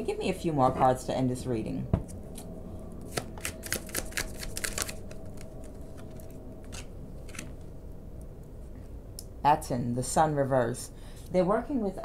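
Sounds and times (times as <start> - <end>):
cards snapping while shuffled: 3.1 - 6.1.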